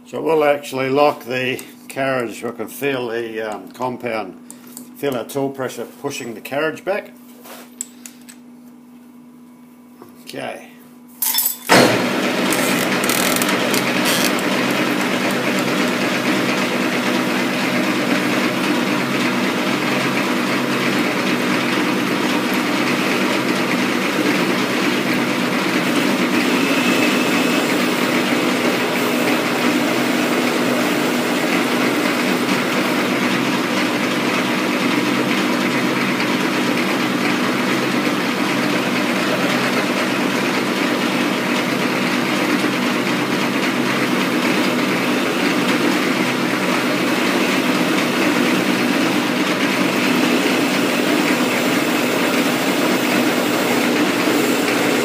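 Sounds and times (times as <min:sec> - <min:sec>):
lathe tool cutting metal: 0:11.8 - 0:34.5, 0:46.6 - 0:55.0
metal lathe humming: 0:11.9 - 0:35.2, 0:44.5 - 0:55.0.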